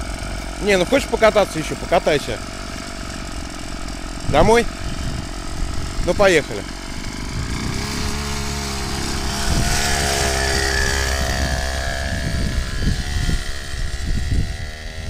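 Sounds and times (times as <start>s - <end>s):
dirt bike engine revving: 0.0s - 15.0s
wind noise on microphone: 3.4s - 6.2s, 6.8s - 15.0s.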